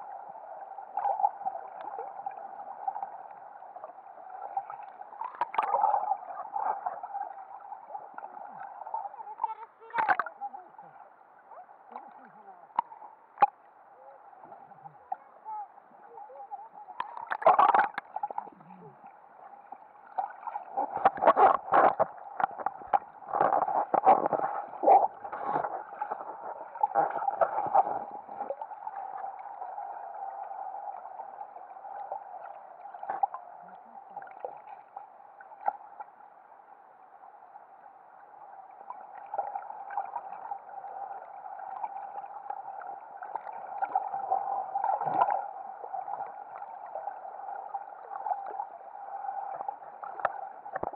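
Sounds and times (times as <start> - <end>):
muffled underwater splashing: 0.0 - 36.2, 38.6 - 50.9
muffled wash of water: 0.0 - 50.9.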